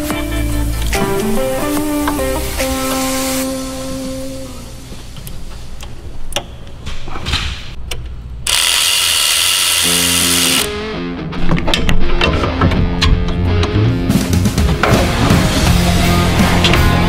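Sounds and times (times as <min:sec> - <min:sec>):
rock music with guitar: 0:00.0 - 0:04.9, 0:09.9 - 0:17.0
power tool running: 0:08.4 - 0:10.8.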